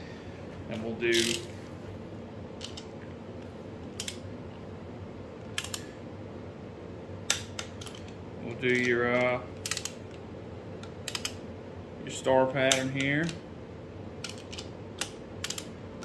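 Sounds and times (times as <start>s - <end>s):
torque wrench clicking: 1.1s - 1.5s, 9.6s - 10.0s, 11.0s - 11.4s, 14.2s - 15.7s.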